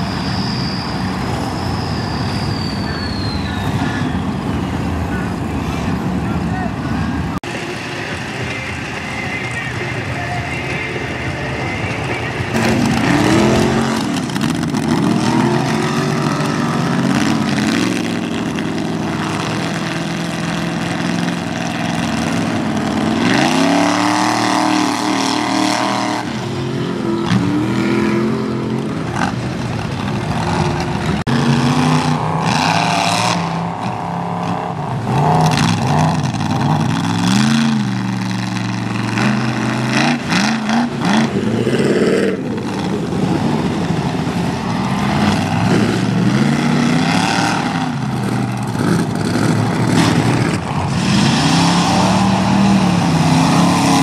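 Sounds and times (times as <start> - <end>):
truck engine revving hard: 11.8 - 54.0.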